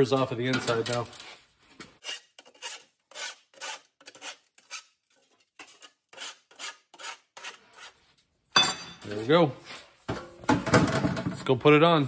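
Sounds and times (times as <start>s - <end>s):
file scraping sheet metal: 2.0s - 8.0s.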